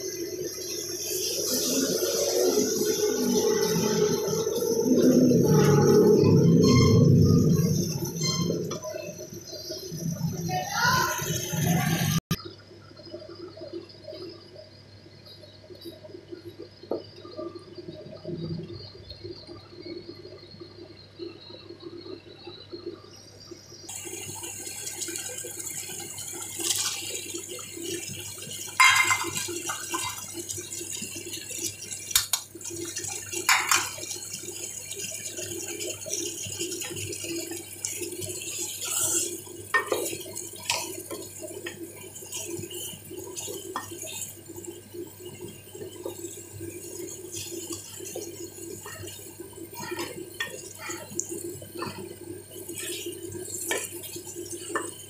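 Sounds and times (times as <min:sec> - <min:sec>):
sauce bubbling and sizzling: 0:00.0 - 0:55.0
spoon knocking and scraping pot: 0:28.8 - 0:30.2, 0:33.5 - 0:34.0, 0:39.7 - 0:41.8.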